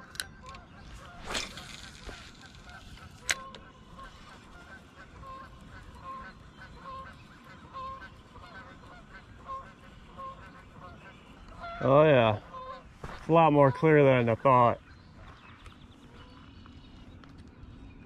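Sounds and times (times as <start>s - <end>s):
geese honking: 0.0s - 14.9s.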